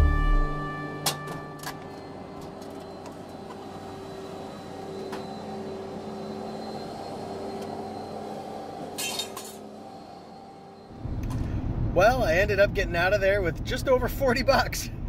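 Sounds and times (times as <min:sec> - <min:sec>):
engine hum: 0:00.0 - 0:15.0
metallic clinks of scrap steel: 0:09.0 - 0:09.6.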